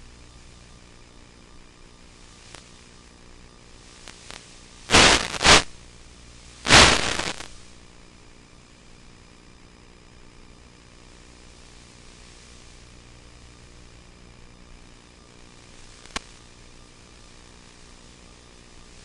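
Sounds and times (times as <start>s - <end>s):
radio static hiss: 0.0s - 8.2s, 8.8s - 19.0s
loud static bursts: 3.7s - 8.0s.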